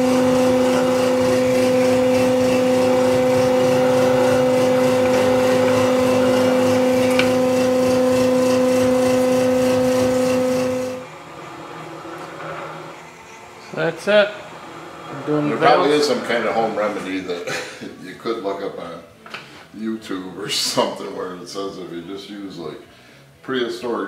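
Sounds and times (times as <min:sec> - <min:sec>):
electric cutting tool humming: 0:00.0 - 0:17.3.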